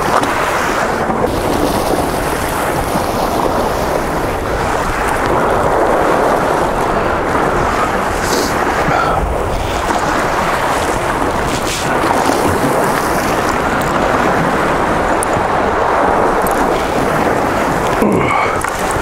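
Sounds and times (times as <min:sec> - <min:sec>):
ocean surf: 0:00.0 - 0:19.0
wind: 0:00.0 - 0:19.0
wind buffeting microphone: 0:00.0 - 0:19.0.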